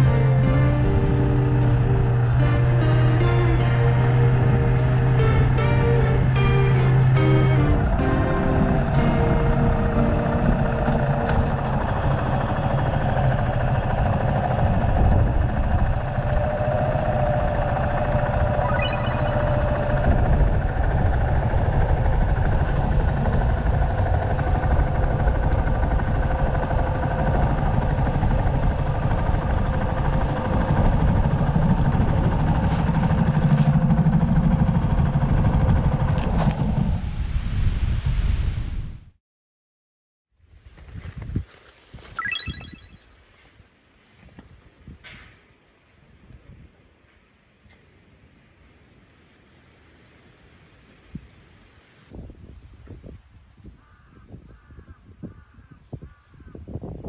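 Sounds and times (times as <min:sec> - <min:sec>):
motorcycle engine rumbling: 0:00.0 - 0:20.8.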